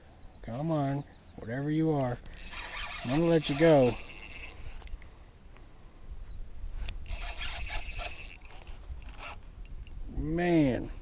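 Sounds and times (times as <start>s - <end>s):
fishing reel whirring and ratcheting: 2.3s - 4.6s, 6.9s - 10.0s
reel clicks: 2.3s - 5.0s, 6.8s - 10.0s.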